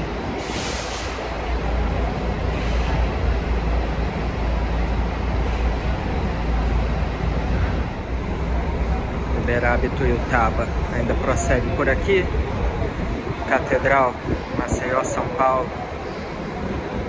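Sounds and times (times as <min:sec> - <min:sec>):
diesel engine low rumble: 0:00.0 - 0:17.0
air brakes hiss: 0:00.4 - 0:01.3, 0:02.5 - 0:03.1.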